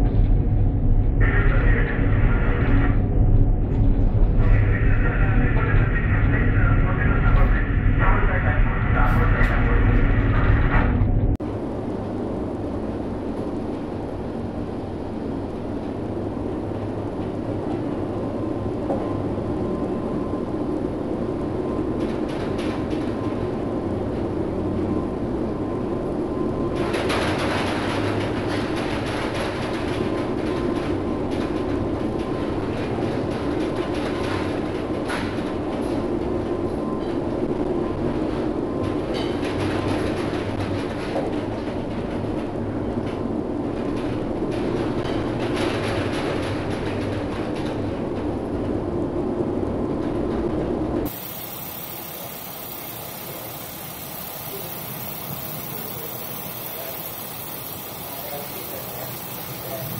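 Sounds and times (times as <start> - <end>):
ship engine rumbling drone: 0.0 - 13.3, 51.0 - 59.9
wind: 0.0 - 59.9.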